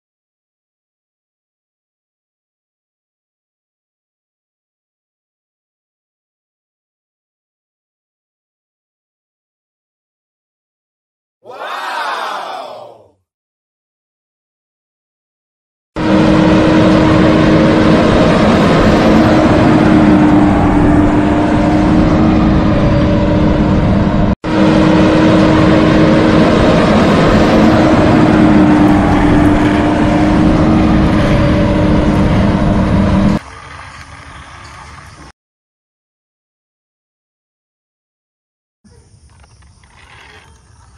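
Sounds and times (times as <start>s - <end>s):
droning vehicle engine: 16.0s - 35.3s.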